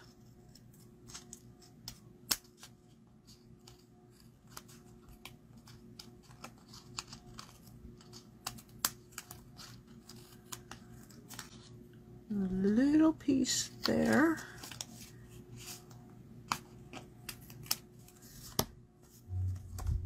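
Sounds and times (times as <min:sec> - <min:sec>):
scissors cutting paper: 0:00.0 - 0:11.6, 0:16.5 - 0:18.2.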